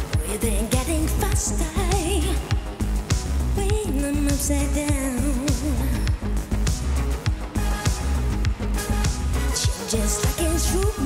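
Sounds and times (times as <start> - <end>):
woman singing: 0.0 - 2.8, 3.5 - 6.2, 9.4 - 11.0
band playing heavy beat: 0.0 - 10.9.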